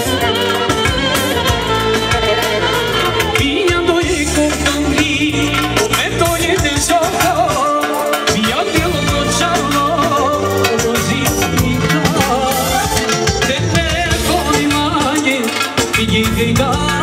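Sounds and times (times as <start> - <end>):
live band music: 0.0 - 17.0
man singing into microphone: 0.0 - 17.0.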